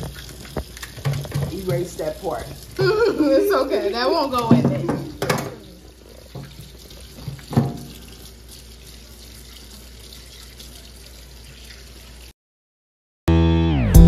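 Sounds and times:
faucet water splashing into sink: 0.0s - 12.3s.

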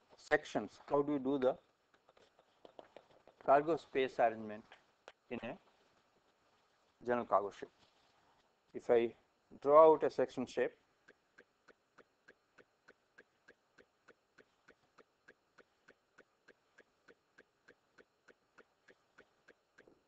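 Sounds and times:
faint even ticking: 10.6s - 20.0s.

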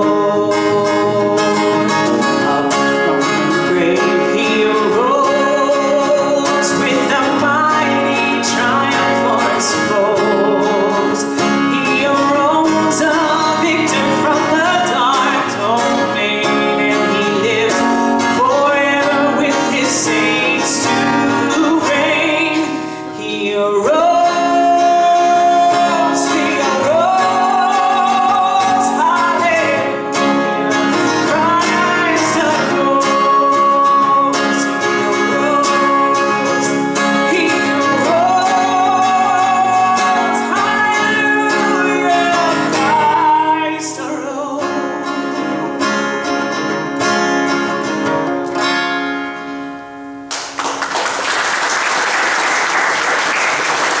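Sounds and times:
acoustic guitar: 0.0s - 54.0s
applause: 50.3s - 54.0s.

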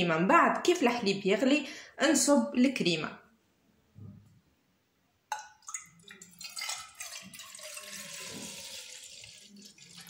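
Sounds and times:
milk pouring into saucepan: 5.3s - 10.0s.

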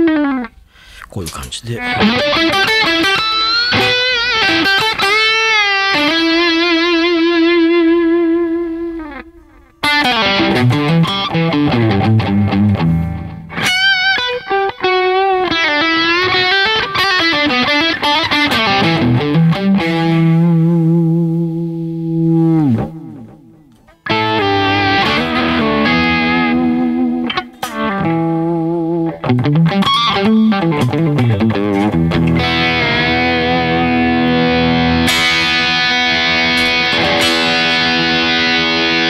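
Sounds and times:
overdriven electric guitar lead: 1.3s - 39.0s.

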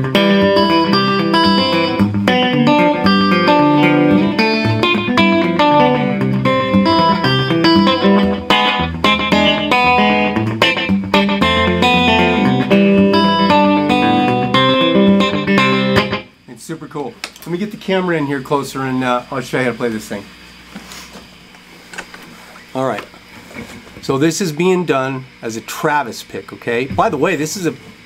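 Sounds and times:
fingerpicked electric guitar: 0.0s - 16.4s.

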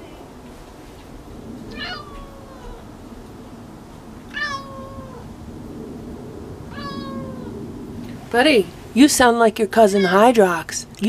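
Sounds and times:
cat meowing: 1.7s - 2.8s, 4.3s - 5.3s, 6.7s - 7.6s, 9.9s - 10.3s.

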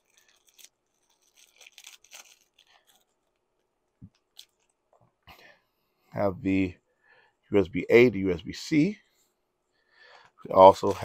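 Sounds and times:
plastic bag crinkling and tearing: 0.0s - 3.5s, 4.1s - 4.7s.

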